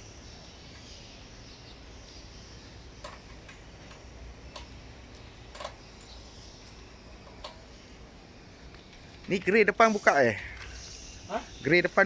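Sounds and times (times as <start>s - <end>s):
sharp clicks and taps of panels: 3.0s - 5.8s.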